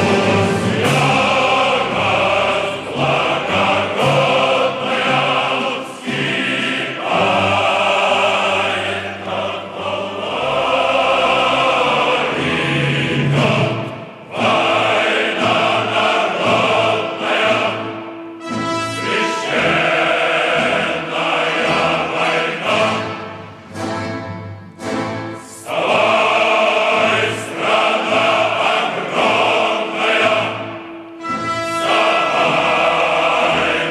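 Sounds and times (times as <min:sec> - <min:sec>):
choir singing held notes: 0:00.0 - 0:33.9.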